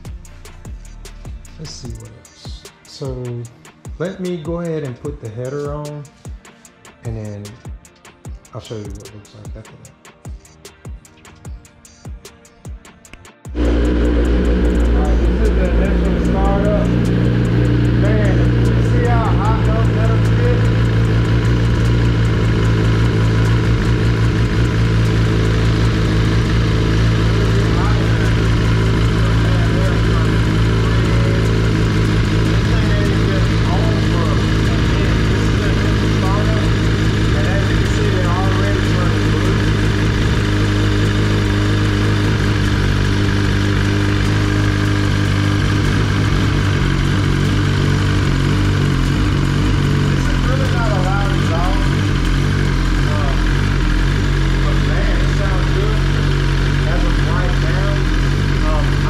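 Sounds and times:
motorcycle engine idling: 13.5 - 59.0.

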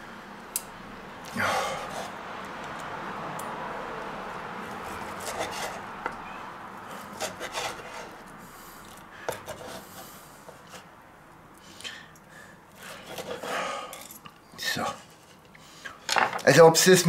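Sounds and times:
knife scraping wooden board: 4.9 - 6.1, 6.9 - 8.3, 9.3 - 10.9, 12.8 - 13.5.

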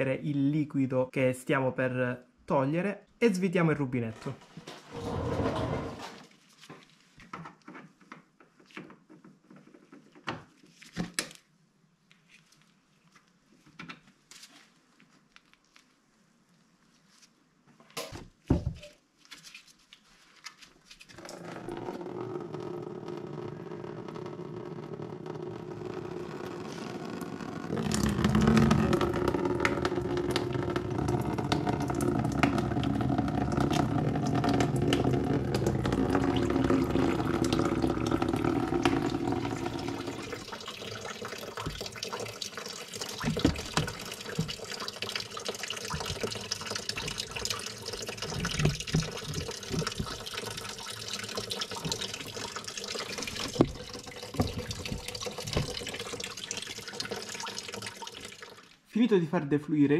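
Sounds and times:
coolant stream splashing into container: 25.8 - 58.8
water dripping: 27.6 - 58.8.

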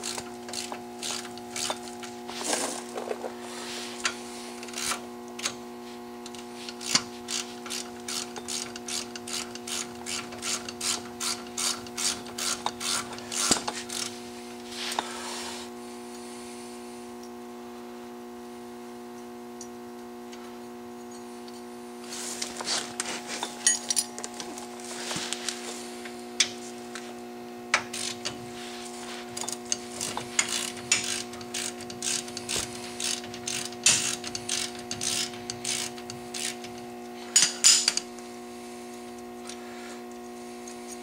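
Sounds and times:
steady background hum: 0.0 - 41.0
socket ratchet clicking: 29.7 - 36.8.

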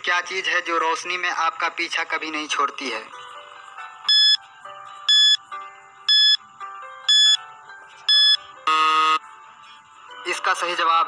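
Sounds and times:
soft background music: 0.0 - 11.0
short high beeps: 4.1 - 4.4, 5.1 - 5.4, 7.1 - 7.4, 8.1 - 9.2.

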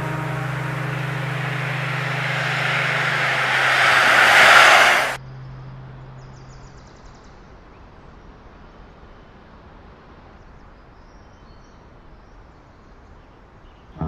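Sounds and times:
car driving past: 0.0 - 5.2
faint outdoor ambience: 0.0 - 5.2
low steady hum: 0.0 - 5.2.

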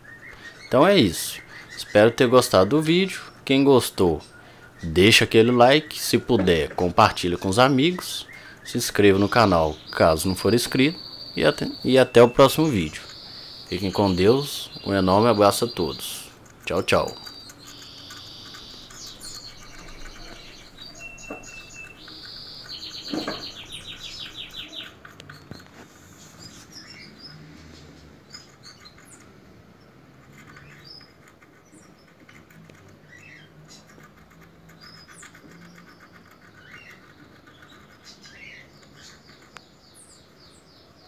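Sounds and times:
small animals chirping: 0.0 - 41.0
knock: 23.1 - 23.5.

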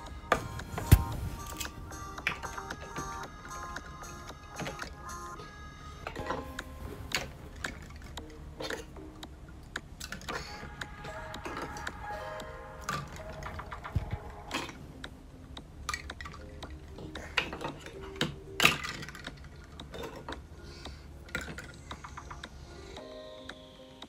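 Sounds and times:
soft background music: 0.0 - 24.0
plastic toys clattering: 10.0 - 10.6, 15.9 - 20.4, 21.2 - 22.4.

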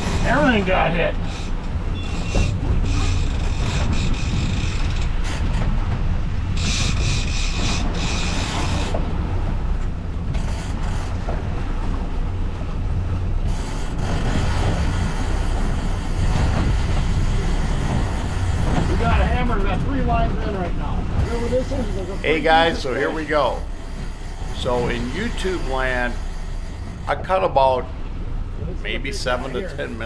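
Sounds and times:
outboard motors running: 0.0 - 30.0
water rushing past hull: 0.0 - 30.0
fishing reel drag whining: 1.2 - 5.0.

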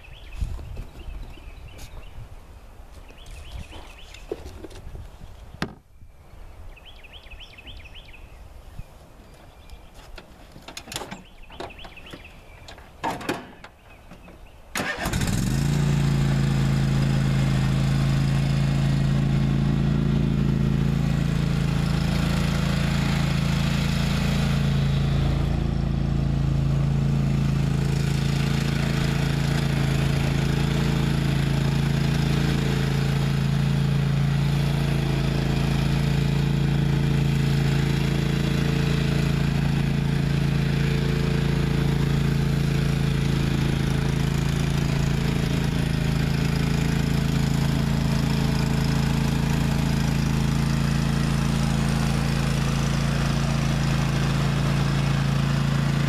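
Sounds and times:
lawn tractor engine humming: 6.8 - 56.0.

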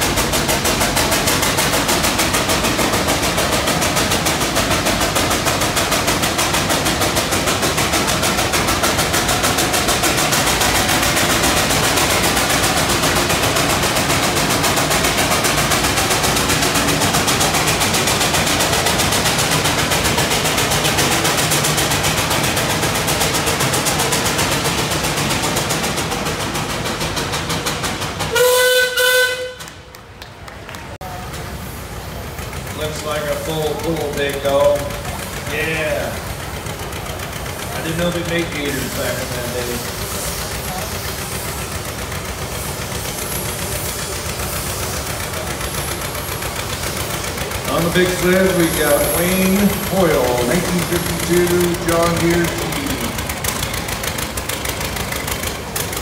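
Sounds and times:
steam engine exhaust chuffing: 0.0 - 56.0
steam whistle blast: 28.3 - 29.8.

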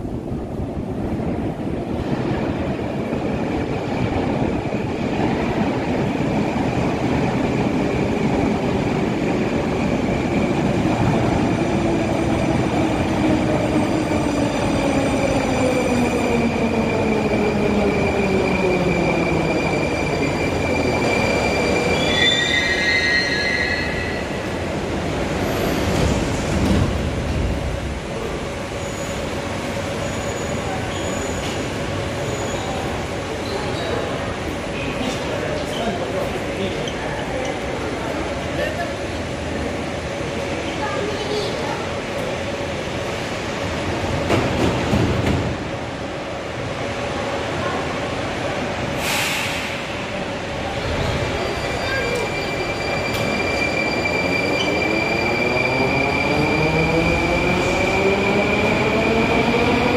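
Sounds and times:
train wheels rumbling on rails: 0.0 - 59.9
train brakes squealing: 20.2 - 24.5, 30.0 - 34.0, 51.1 - 56.8.

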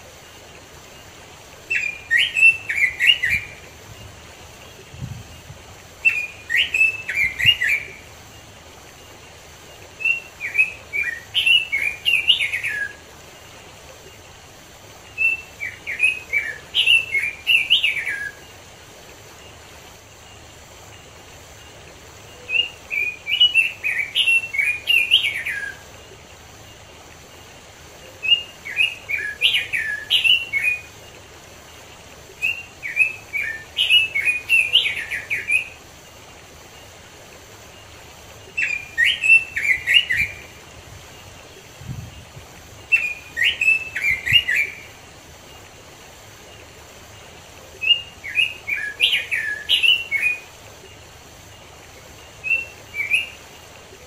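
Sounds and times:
bird singing warbling phrases: 1.7 - 8.1, 10.0 - 13.1, 15.1 - 18.6, 22.2 - 26.2, 28.0 - 31.2, 32.3 - 35.8, 38.4 - 45.7, 46.5 - 54.0.

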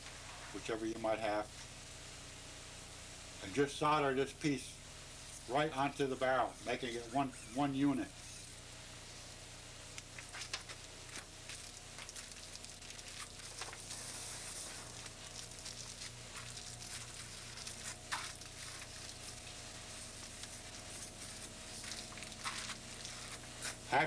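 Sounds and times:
steady low hum: 0.0 - 24.0
paper crackling and rustling: 10.2 - 24.0.

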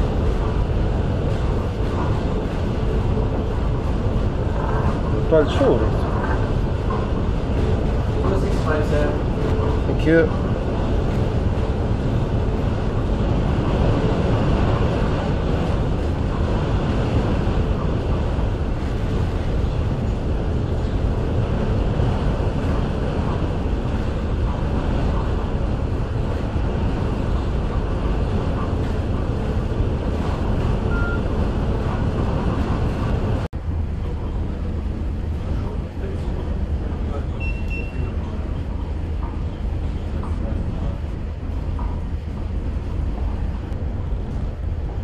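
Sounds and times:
wind buffeting: 0.0 - 37.2
ship low rumble and hiss: 0.0 - 45.0
faint short beep: 30.9 - 31.2, 37.4 - 38.1.

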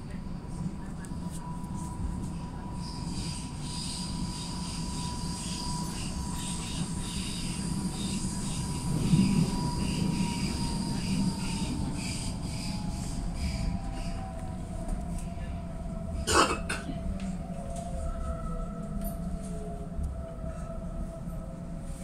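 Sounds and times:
train running gear rumble: 0.0 - 22.0
wheels hissing on rails: 2.8 - 14.9.

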